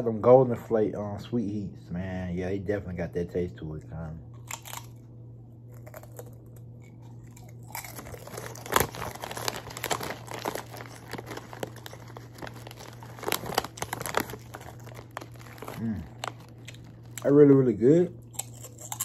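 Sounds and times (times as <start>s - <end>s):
faint chewing: 5.7s - 17.3s
foil chip bag crinkling: 5.7s - 19.0s.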